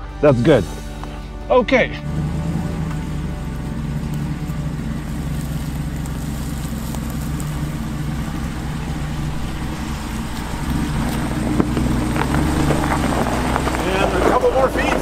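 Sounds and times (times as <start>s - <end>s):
engine running at low revs: 0.0s - 15.0s.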